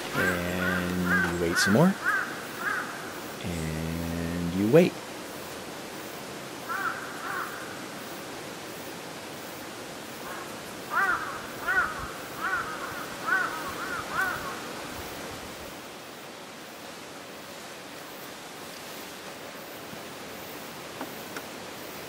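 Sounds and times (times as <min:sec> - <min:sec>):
crow cawing: 0:00.0 - 0:03.2, 0:06.7 - 0:07.8, 0:10.2 - 0:14.7
steady background hiss: 0:00.0 - 0:22.0.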